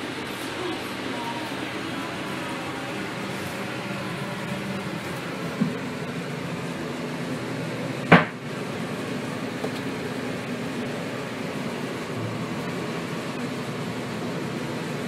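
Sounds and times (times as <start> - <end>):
steady background noise: 0.0 - 15.0
sharp knock: 8.1 - 8.4.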